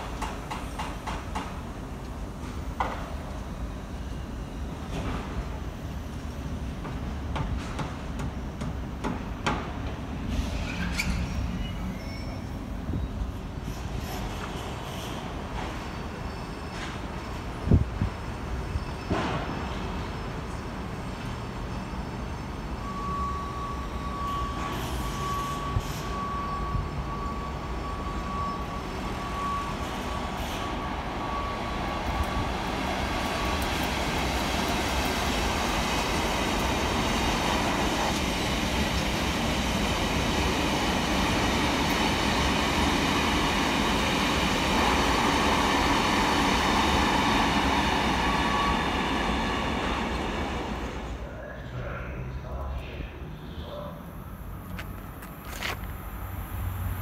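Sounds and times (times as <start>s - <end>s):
wheels rumbling on rails: 0.0s - 57.0s
diesel locomotive passing: 8.0s - 57.0s
high ringing tone: 18.7s - 32.6s.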